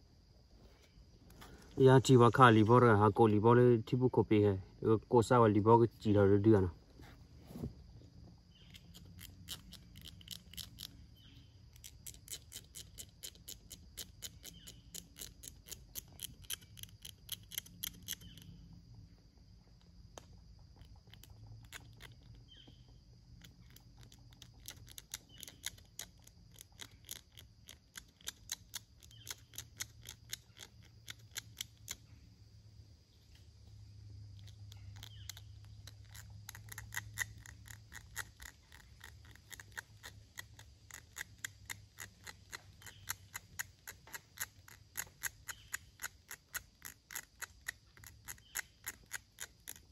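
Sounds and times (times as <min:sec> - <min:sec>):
sharp dry clicks: 0:08.6 - 0:18.7, 0:19.7 - 0:32.2, 0:34.3 - 0:49.9.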